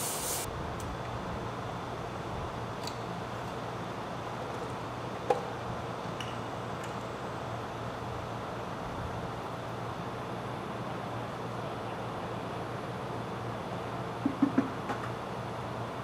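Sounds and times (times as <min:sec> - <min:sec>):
workshop hum and hiss: 0:00.0 - 0:16.0.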